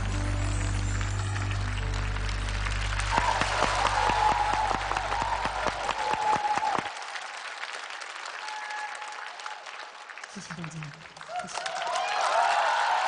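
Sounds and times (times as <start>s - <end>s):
band's low held chord: 0.0s - 5.5s
audience applauding: 0.0s - 13.0s.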